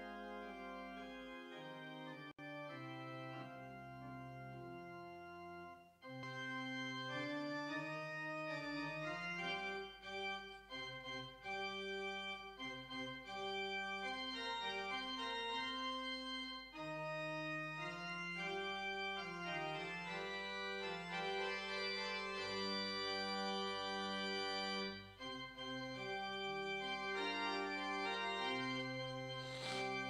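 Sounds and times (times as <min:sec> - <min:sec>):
church organ playing hymn: 0:00.0 - 0:30.0
deep organ pedal bass notes: 0:00.0 - 0:30.0.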